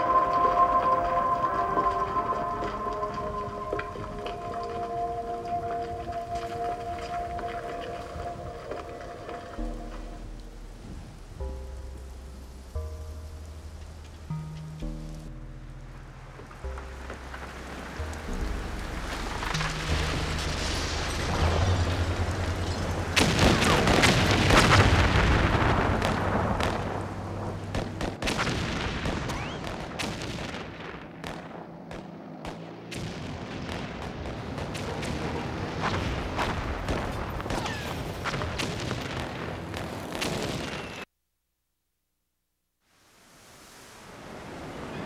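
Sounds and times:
low steady hum: 0.0s - 28.0s
crackles and bangs: 16.4s - 41.1s.

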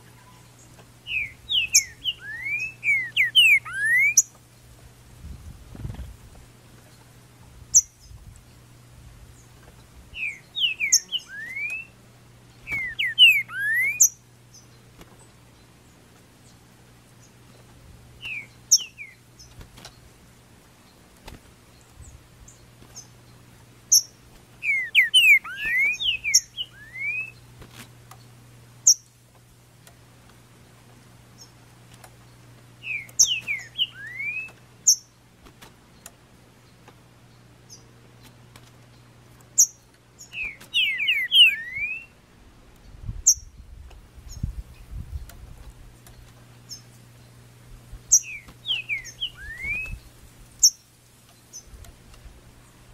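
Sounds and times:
short high bird chirps: 1.1s - 4.2s, 12.6s - 14.1s, 24.0s - 27.4s, 40.4s - 42.1s, 48.1s - 50.8s
bird whistled song phrases: 1.1s - 4.3s, 10.2s - 12.0s, 12.6s - 14.2s, 18.2s - 19.2s, 23.9s - 27.4s, 32.8s - 35.0s, 40.3s - 42.2s, 48.1s - 50.8s.

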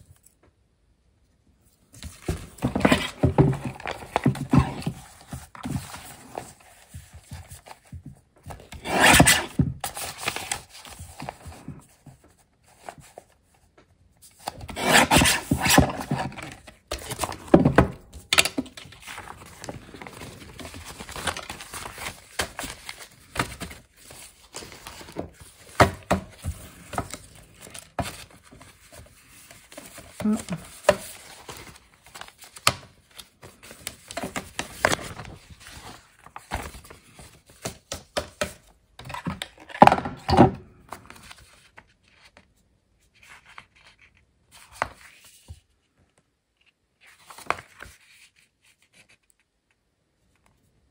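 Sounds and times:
paper tapping and rustling: 1.9s - 39.4s.

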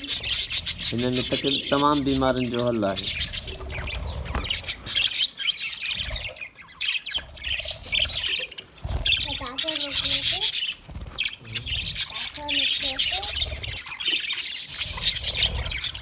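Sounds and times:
budgerigars chirping and squawking: 0.0s - 16.0s.

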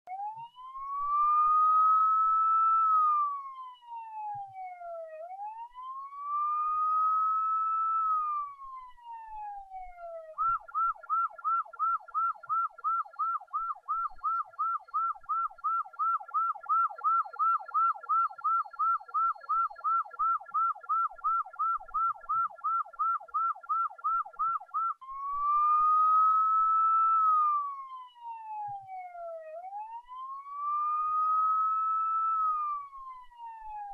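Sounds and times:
police siren wailing and yelping: 0.1s - 33.9s.

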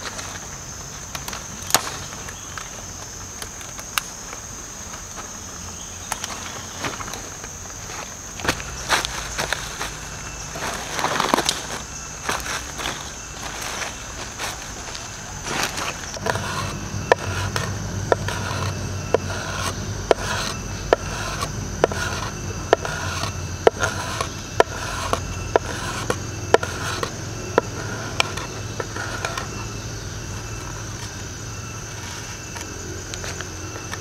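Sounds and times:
knife scraping bamboo: 15.4s - 29.8s.

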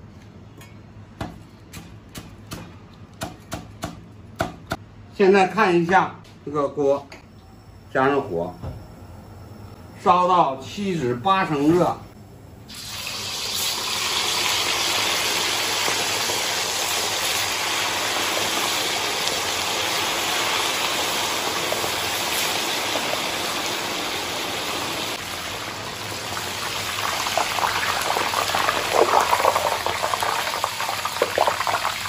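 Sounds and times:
oil sizzling deep-frying: 12.7s - 32.0s.

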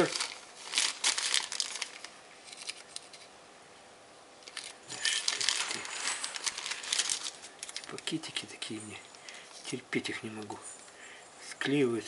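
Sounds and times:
plastic bag crinkling: 0.0s - 3.2s, 4.4s - 10.6s.

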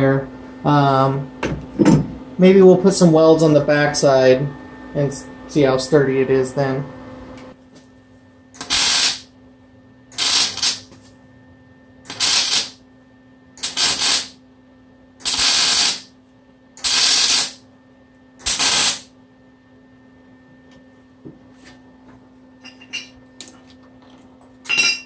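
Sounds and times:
steady low hum: 0.0s - 25.0s
welder sizzling crackle: 8.6s - 9.3s, 10.1s - 10.9s, 12.1s - 12.8s, 13.6s - 14.4s, 15.2s - 16.1s, 16.8s - 17.6s, 18.4s - 19.1s.

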